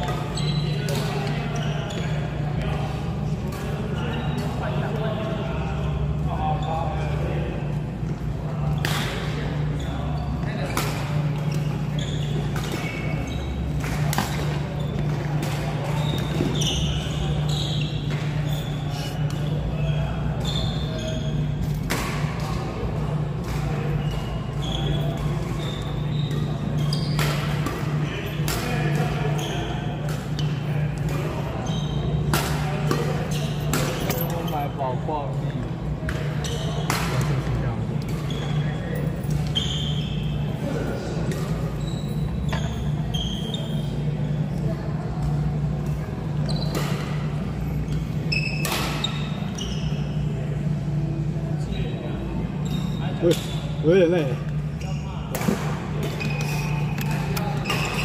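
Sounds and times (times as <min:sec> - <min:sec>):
shoes squeaking on court floor: 0:00.0 - 0:58.0.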